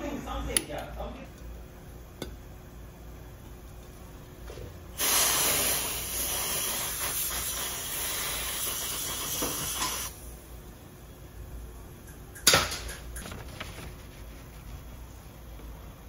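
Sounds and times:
aerosol spray can hissing: 5.0s - 10.1s.

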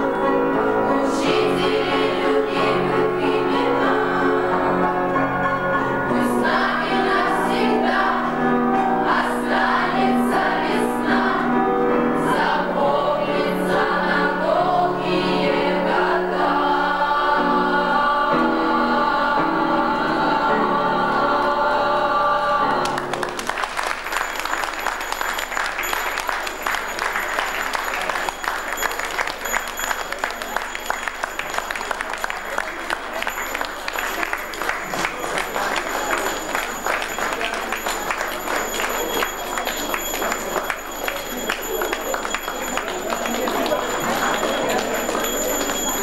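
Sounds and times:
choir singing: 0.0s - 23.2s, 33.2s - 46.0s
applause: 22.8s - 46.0s.

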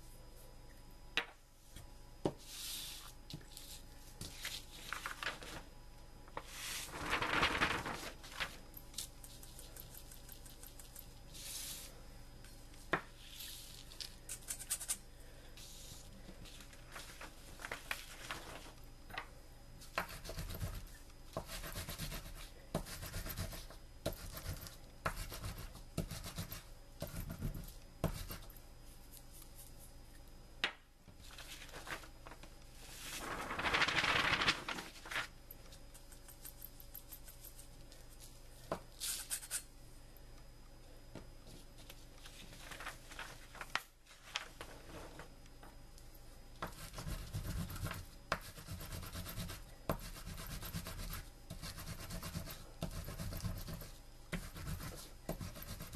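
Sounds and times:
rustling noise: 31.2s - 35.3s.

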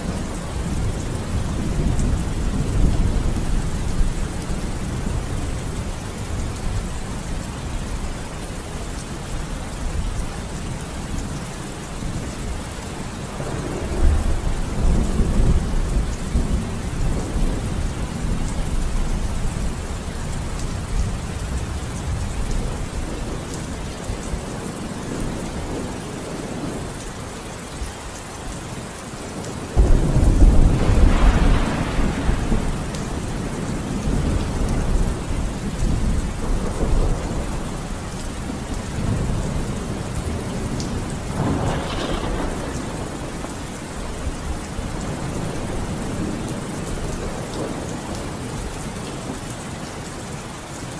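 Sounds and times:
rain falling steadily: 0.0s - 50.9s
rolling thunder: 13.3s - 19.8s, 29.8s - 48.2s
loud thunderclap: 29.8s - 35.2s, 41.0s - 43.4s.

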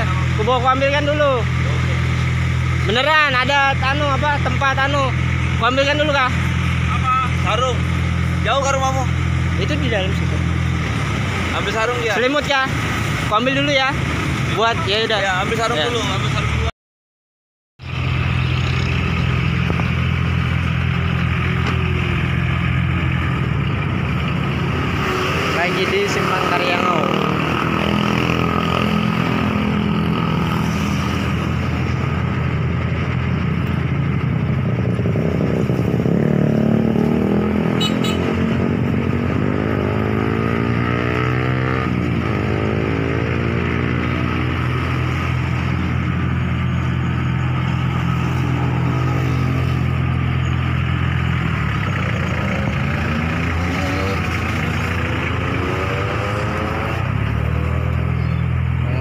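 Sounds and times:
vehicles passing: 0.0s - 16.7s, 17.8s - 59.0s
vehicle engine running: 17.8s - 24.8s, 45.2s - 59.0s.

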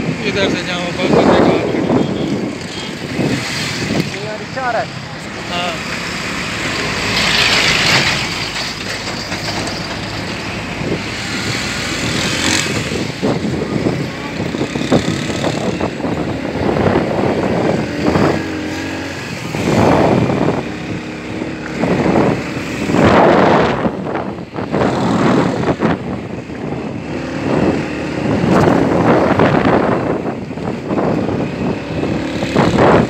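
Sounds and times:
wind rushing past: 10.4s - 33.0s.

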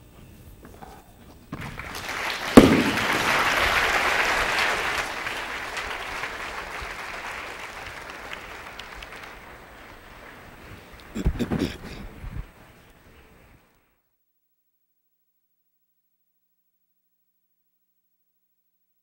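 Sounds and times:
audience applauding: 1.6s - 12.0s.

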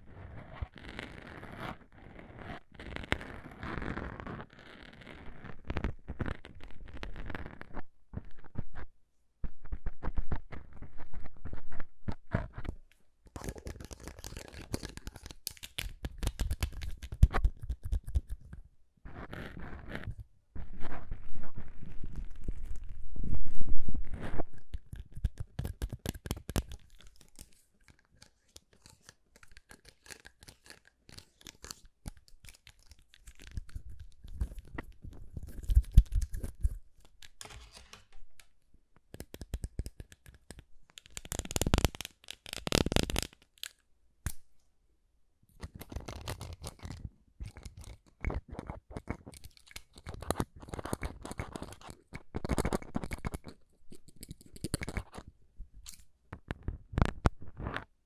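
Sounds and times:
scratchy rubbing on microphone: 0.0s - 12.8s, 16.2s - 29.1s, 32.6s - 38.2s, 56.4s - 57.9s.

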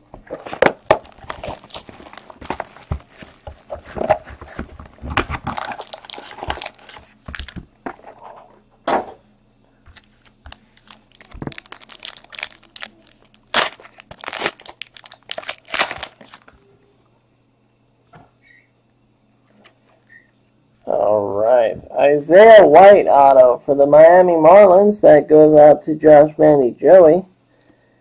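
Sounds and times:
foil wrapper crinkling: 0.2s - 8.2s, 9.9s - 16.6s.

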